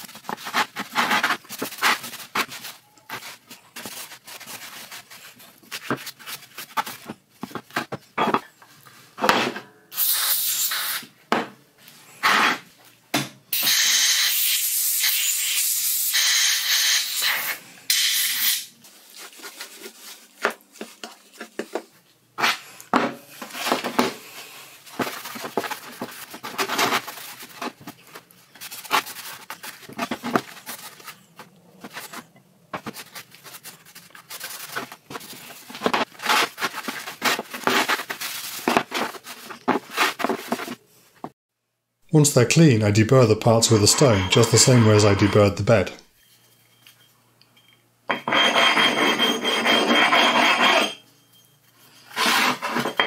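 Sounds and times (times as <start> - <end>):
aerosol can spraying: 10.0 - 11.1, 13.6 - 18.7.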